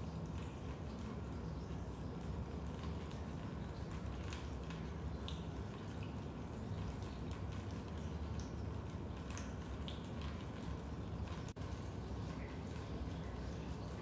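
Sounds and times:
water dripping: 0.0 - 14.0.

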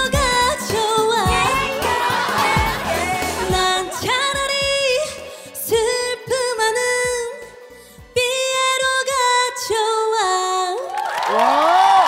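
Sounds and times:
band backing: 0.0 - 6.4
woman singing: 0.0 - 10.9
drum hits: 1.3 - 4.9.

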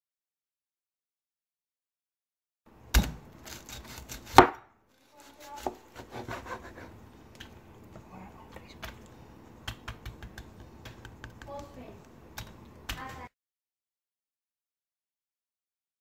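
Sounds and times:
knife chopping crispy pork: 3.0 - 6.9
crackling skin being cut: 3.0 - 7.6.

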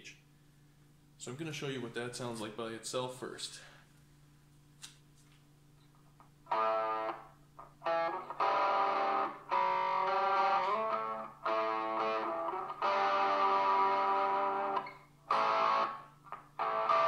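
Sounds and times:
amp hum: 0.0 - 17.0
distorted electric guitar chords: 6.5 - 17.0.

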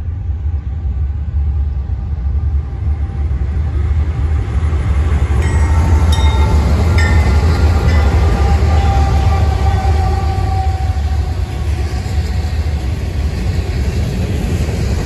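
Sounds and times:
diesel locomotive engine drone: 0.0 - 15.0
wheels clicking and squeaking on rails: 4.8 - 15.0.

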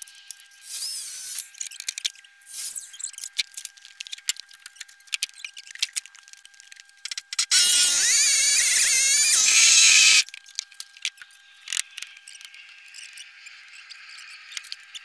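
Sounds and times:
saw and board handling clicks: 7.0 - 12.5.

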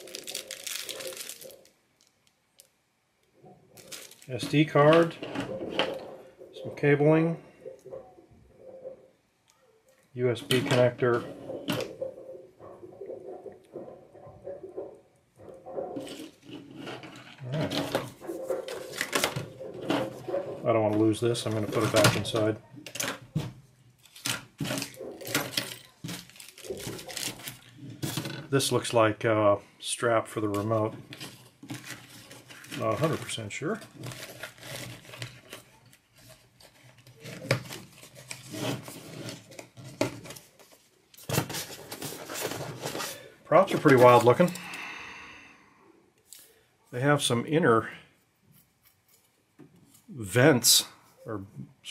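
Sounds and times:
plastic bags rustling: 0.0 - 2.7, 3.6 - 6.3, 16.0 - 20.8, 24.0 - 28.8, 31.0 - 44.7
plastic crinkle: 0.0 - 2.8, 3.6 - 6.2, 24.0 - 28.8, 30.6 - 44.6.

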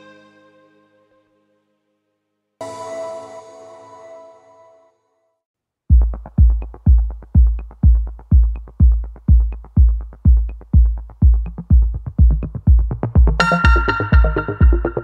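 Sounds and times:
deep kick drum: 5.9 - 15.0
light ticking percussion: 5.9 - 15.0.

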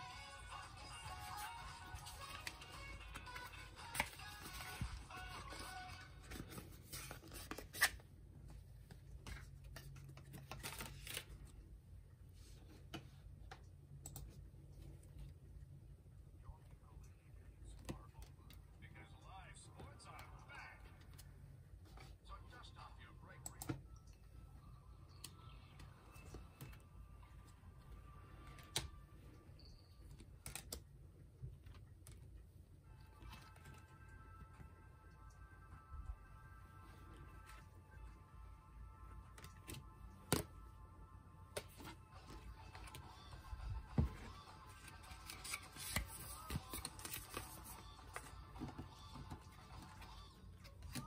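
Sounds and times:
cards and paper rustling: 1.0 - 11.7, 33.1 - 34.0, 41.5 - 51.0.

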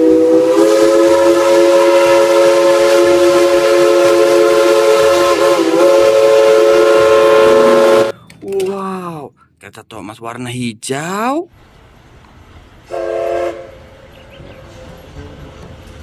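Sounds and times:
steam hissing: 0.0 - 8.1
steam locomotive whistle: 0.0 - 8.2, 12.8 - 13.9.

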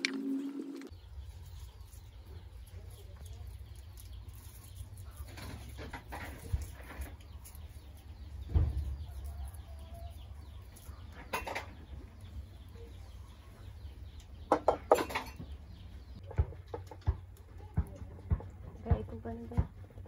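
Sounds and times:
chickens clucking: 0.0 - 20.0.

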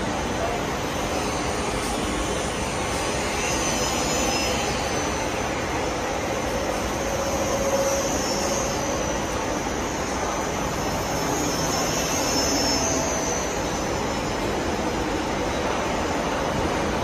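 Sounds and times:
faint high whine: 0.0 - 17.0.

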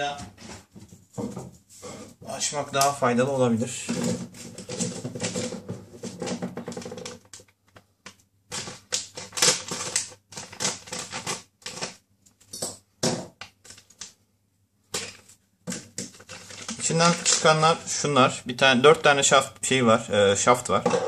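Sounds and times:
plastic bag crinkling: 8.5 - 12.0, 16.1 - 17.9.

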